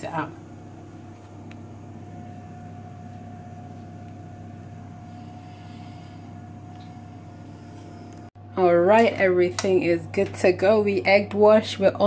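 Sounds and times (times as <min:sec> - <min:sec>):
low machine hum: 0:00.0 - 0:12.0
thin constant whine: 0:00.0 - 0:12.0.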